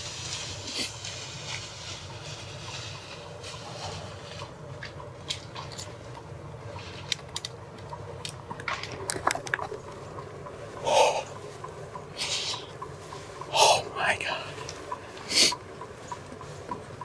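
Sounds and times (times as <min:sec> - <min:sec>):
heavy breaths or whispers: 0:10.8 - 0:11.3.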